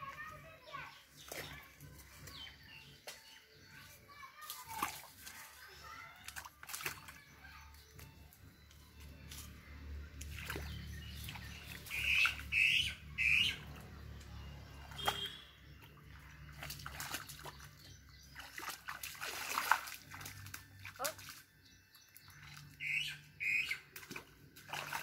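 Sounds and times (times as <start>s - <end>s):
bare feet splashing in mud: 4.3s - 8.1s, 9.0s - 12.7s, 14.7s - 25.0s
bird chirping: 7.2s - 19.2s, 20.2s - 24.1s.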